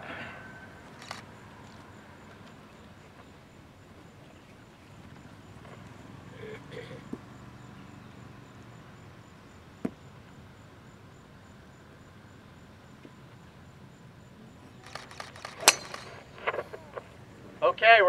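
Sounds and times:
golf club striking ball: 15.5s - 16.2s.

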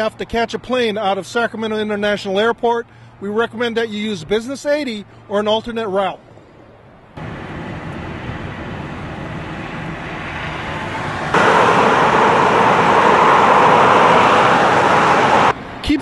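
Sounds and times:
car road and tyre noise: 0.0s - 16.0s
road-work equipment noise: 6.2s - 16.0s.

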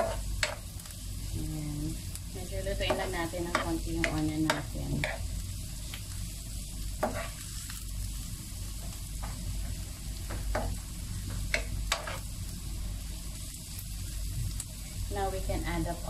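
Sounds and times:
wooden spoon scraping a pan: 0.0s - 0.6s, 2.9s - 5.3s, 7.0s - 7.6s, 11.5s - 12.3s
onion and ginger sizzling in pan: 0.0s - 16.0s.

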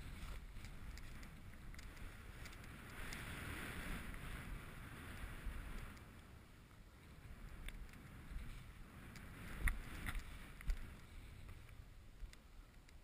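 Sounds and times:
snowboard sliding through snow: 0.0s - 5.8s
wind rumble on microphone: 0.0s - 13.0s
light clicks: 7.4s - 13.0s.

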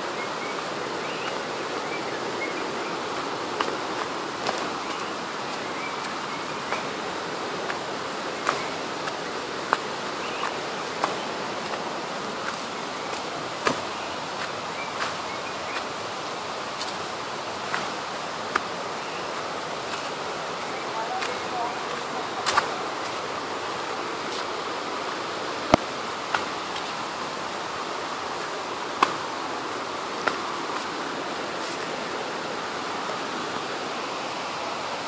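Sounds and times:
forest background hiss: 0.0s - 35.0s
footsteps on dry leaves and twigs: 2.4s - 24.6s.

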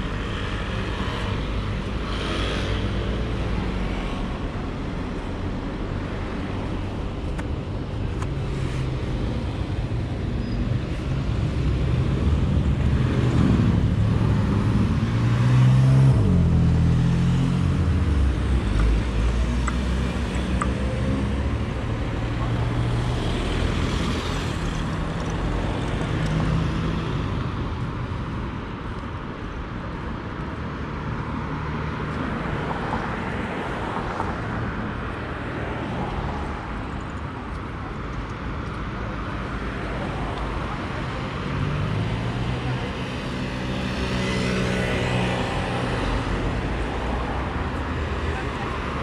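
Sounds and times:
cars driving past: 10.5s - 27.8s.

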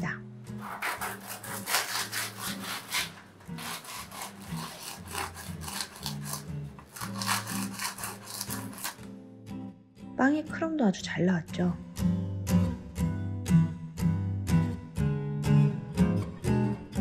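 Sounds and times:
bread knife sawing crust: 0.5s - 9.1s.

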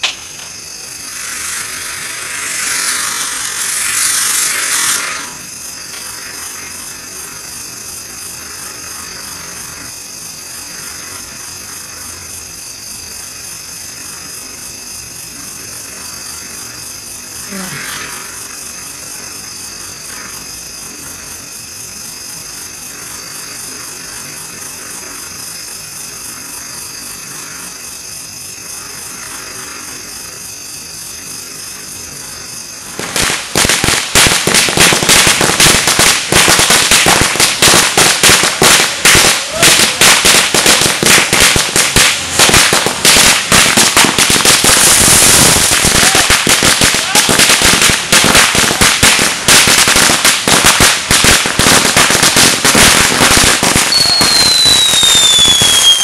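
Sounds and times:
firecrackers cracking: 0.0s - 12.0s, 31.7s - 56.0s
firework fountain hissing: 0.0s - 56.0s.

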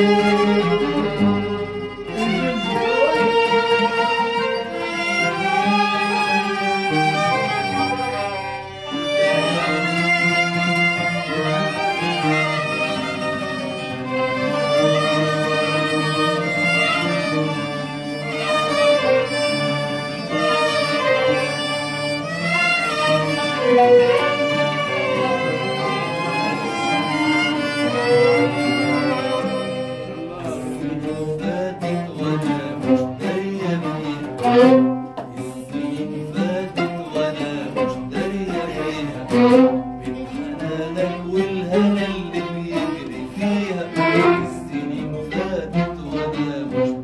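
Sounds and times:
plucked strings: 0.0s - 47.0s
violin ornamented melody: 0.0s - 47.0s.

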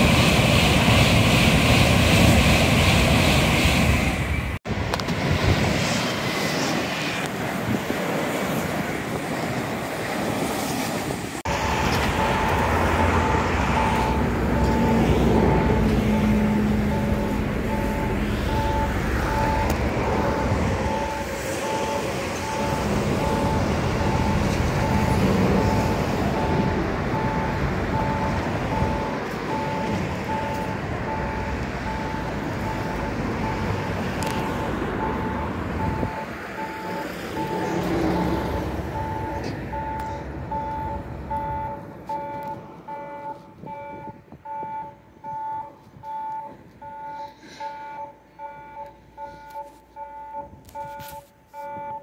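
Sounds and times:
steady rumble: 0.0s - 9.7s
level crossing warning bell ringing: 11.5s - 52.0s.

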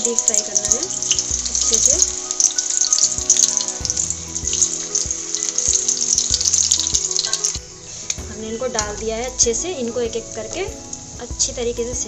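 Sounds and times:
deep-frying in hot oil: 0.0s - 12.0s.

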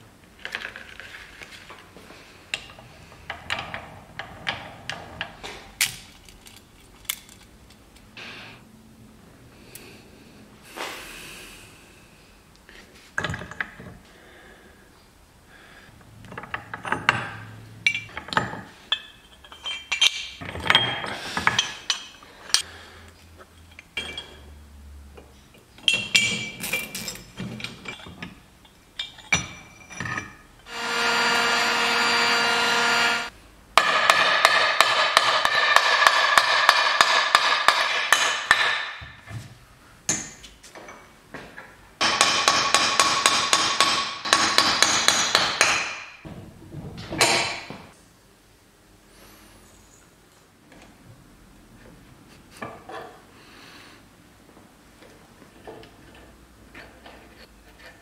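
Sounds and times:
metal parts clinking on engine case: 16.3s - 22.7s, 23.4s - 24.6s, 25.8s - 30.5s
impact wrench whining and hammering: 30.7s - 39.3s, 42.0s - 46.3s.

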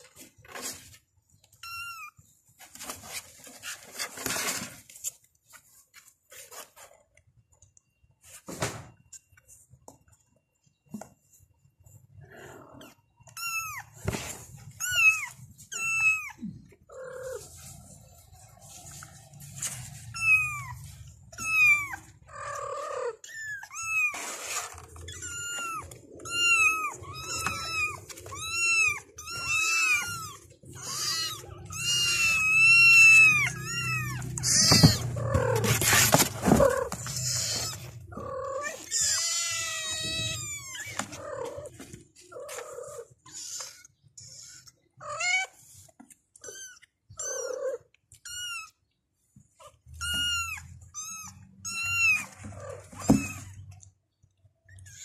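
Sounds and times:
kittens mewing: 12.2s - 17.6s, 19.8s - 45.7s, 49.5s - 53.9s
rustling on cardboard box: 34.4s - 38.0s.

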